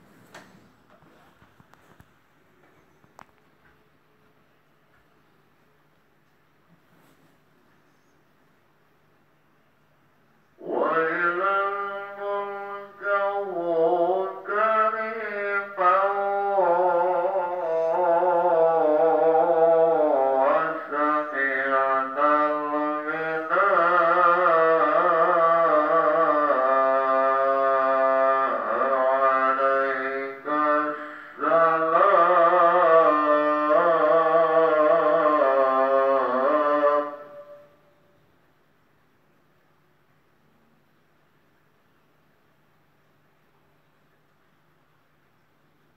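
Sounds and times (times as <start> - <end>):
wavering horn-like drone: 36.1 - 38.2.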